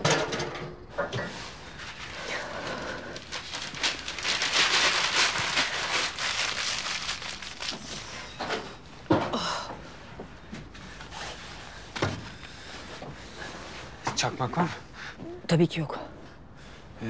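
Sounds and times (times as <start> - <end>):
newspaper crumpling and tearing: 1.8 - 8.3.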